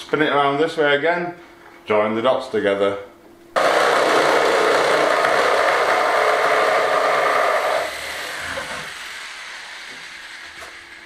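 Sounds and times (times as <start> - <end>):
electric jigsaw cutting wood: 3.6 - 10.8.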